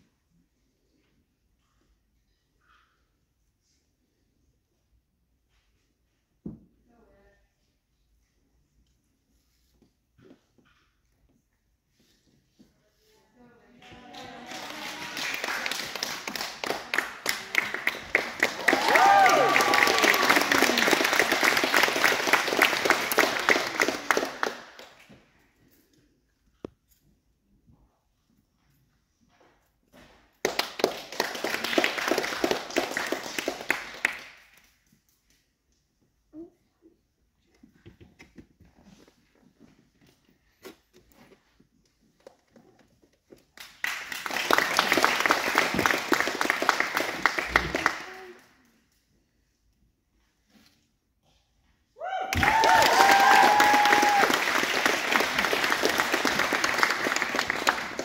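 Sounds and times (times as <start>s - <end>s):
people applauding: 13.8s - 25.2s, 30.4s - 34.5s, 43.6s - 48.6s, 52.3s - 58.0s
people clapping: 13.8s - 25.3s, 30.0s - 34.7s, 43.4s - 48.8s, 52.2s - 58.0s
high cheering shouts: 18.2s - 21.6s, 52.0s - 54.7s.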